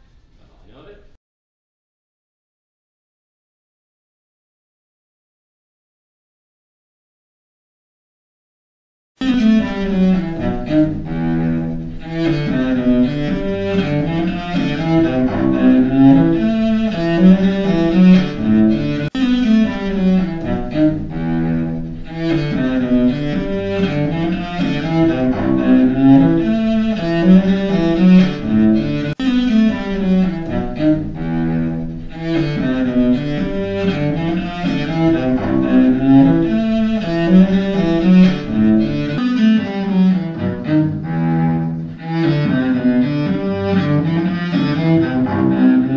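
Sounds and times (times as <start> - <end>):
bowed cello: 9.2 - 45.9.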